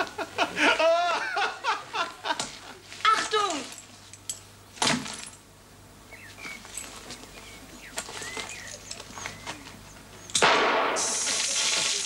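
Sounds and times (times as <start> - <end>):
faint bird chirps: 6.1 - 10.4.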